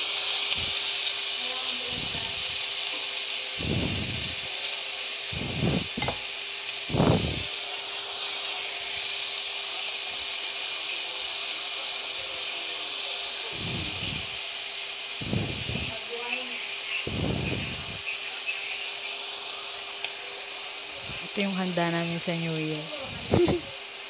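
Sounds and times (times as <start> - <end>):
meat sizzling in a pan: 0.0 - 24.0
tongs knocking in pan: 5.9 - 6.3.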